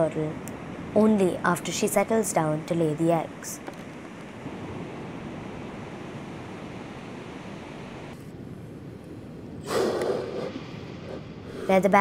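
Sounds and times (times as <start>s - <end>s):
sea turtle breath: 9.6s - 11.8s.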